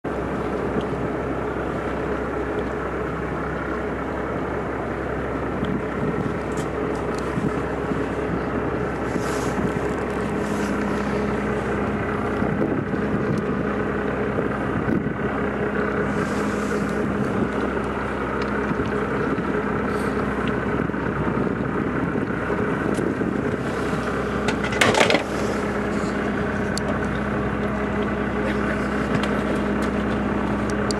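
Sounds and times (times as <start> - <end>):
boat engine running: 0.0 - 30.9
loud clatter: 24.4 - 26.0.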